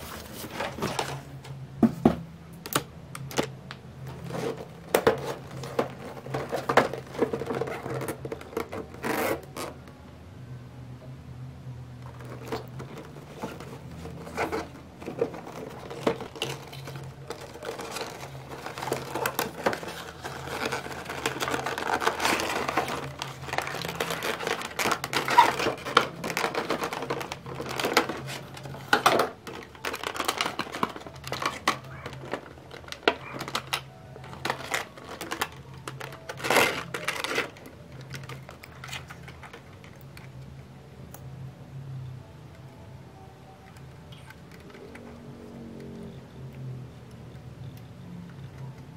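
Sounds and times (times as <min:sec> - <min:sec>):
cardboard box handling: 0:00.0 - 0:01.3, 0:12.2 - 0:37.6
plastic packaging crinkling: 0:02.7 - 0:09.8, 0:12.0 - 0:40.4.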